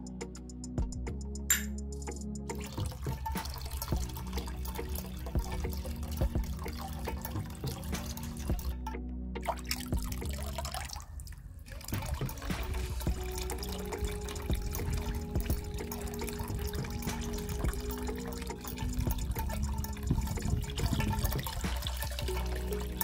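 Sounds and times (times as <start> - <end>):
thin stream into pool: 2.5 - 8.7, 9.4 - 23.0
water drips and splashes: 2.5 - 23.0
water pouring into pipe: 2.5 - 23.0.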